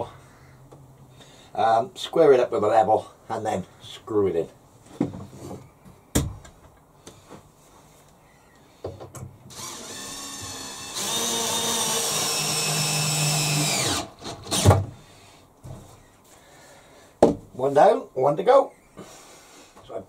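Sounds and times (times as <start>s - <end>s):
cordless drill driving screw: 9.5s - 14.8s.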